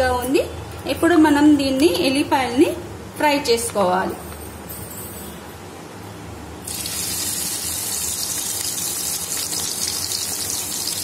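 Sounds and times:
garlic sizzling in hot oil: 0:06.7 - 0:11.0.

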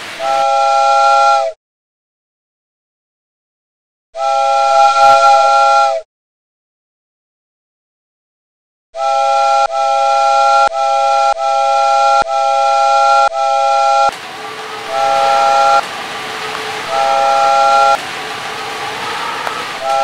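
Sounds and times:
steady hiss: 0:00.0 - 0:00.8, 0:14.1 - 0:20.0
chime whistle blasts: 0:00.2 - 0:01.5, 0:04.2 - 0:06.0, 0:09.0 - 0:20.0.

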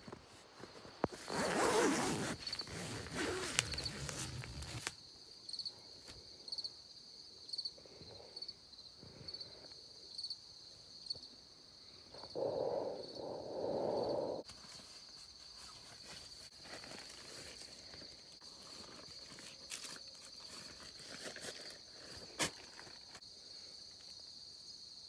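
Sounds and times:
tent fabric rustling: 0:00.0 - 0:05.0, 0:14.5 - 0:22.9.

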